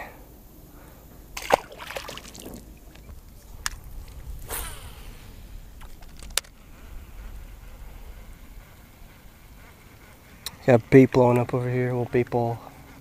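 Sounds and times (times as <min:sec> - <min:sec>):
low steady rumble: 0:00.0 - 0:13.0
small water splashes: 0:01.4 - 0:03.1.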